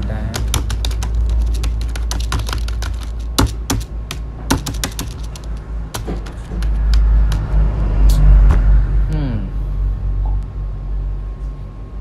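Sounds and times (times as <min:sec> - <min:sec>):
low steady hum: 0:00.0 - 0:12.0
keyboard typing: 0:00.3 - 0:07.6.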